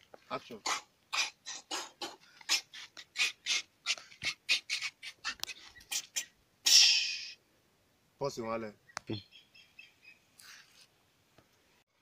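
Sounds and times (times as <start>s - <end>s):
sharp hissing exhalations: 5.5s - 7.4s.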